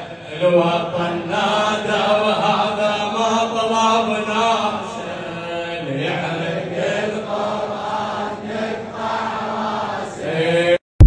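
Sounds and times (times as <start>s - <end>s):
man chanting into a microphone: 0.0s - 7.8s, 10.0s - 10.8s.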